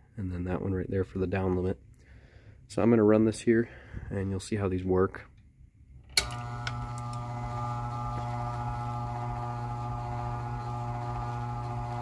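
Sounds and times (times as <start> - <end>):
garage door opener motor humming: 6.1 - 12.0.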